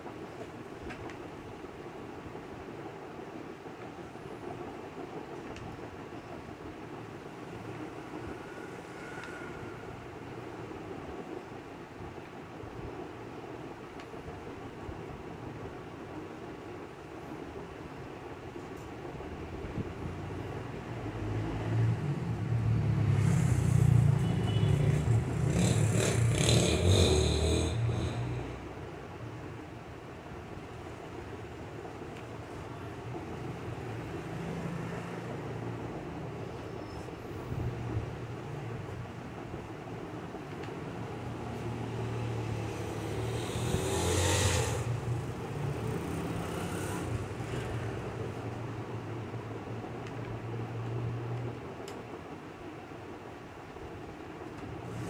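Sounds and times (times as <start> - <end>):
hiss and rattle: 0.0 - 52.5, 53.9 - 55.0
cloth rubbing on roller: 42.6 - 47.4.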